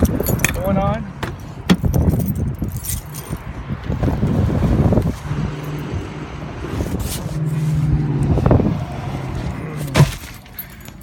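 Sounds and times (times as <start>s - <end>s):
car engine hum: 0.0s - 11.0s
car door opening: 8.2s - 11.0s.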